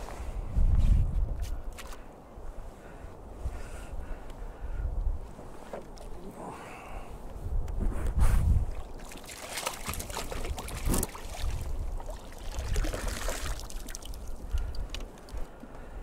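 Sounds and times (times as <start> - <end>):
water sloshing and dripping: 8.7 - 15.6.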